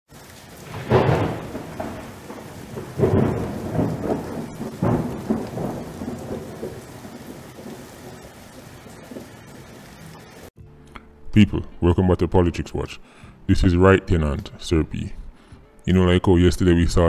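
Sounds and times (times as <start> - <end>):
thunder claps rolling: 0.1 - 10.5
steady rain: 0.1 - 10.6.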